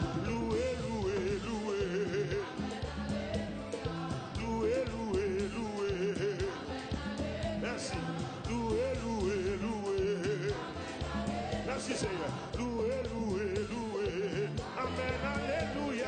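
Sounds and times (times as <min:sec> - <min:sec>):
drum hits: 0:00.0 - 0:02.0
steady bass notes: 0:00.0 - 0:16.0.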